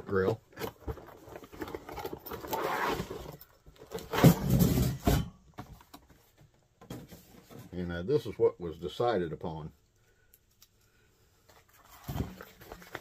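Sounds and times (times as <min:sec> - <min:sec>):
cardboard and plastic rustling: 0:00.0 - 0:07.8, 0:11.4 - 0:13.0.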